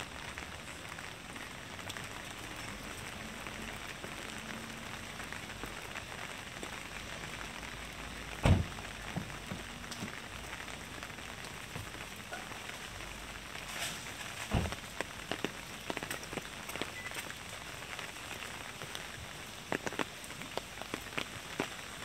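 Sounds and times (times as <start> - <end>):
rain on wet pavement: 0.0 - 22.0
dull thump: 8.4 - 9.3.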